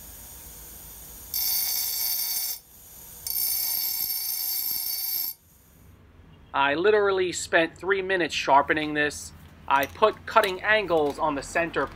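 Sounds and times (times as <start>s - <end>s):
high-pitched grinding of steel: 1.3s - 5.4s.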